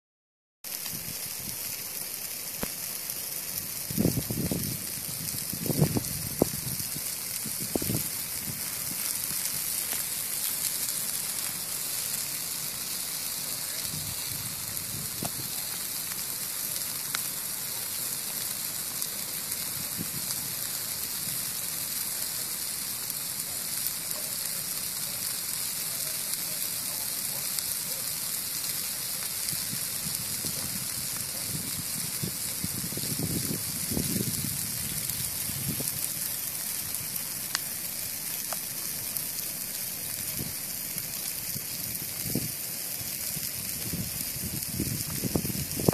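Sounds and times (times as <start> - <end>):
grass fire crackling: 0.6 - 45.9
sharp pops from fire: 0.7 - 45.9.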